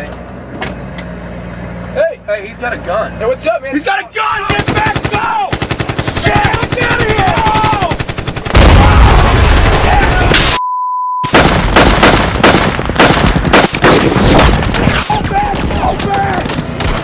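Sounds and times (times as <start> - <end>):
person shouting: 4.0 - 5.6, 6.2 - 8.0, 9.8 - 10.4
rapid automatic gunfire: 4.4 - 10.6, 11.3 - 17.0
test-tone beep: 10.6 - 11.3.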